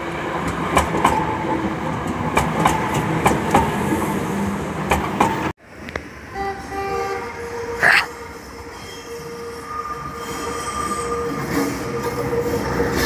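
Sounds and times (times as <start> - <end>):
train wheels rumbling on rails: 0.0 - 7.6.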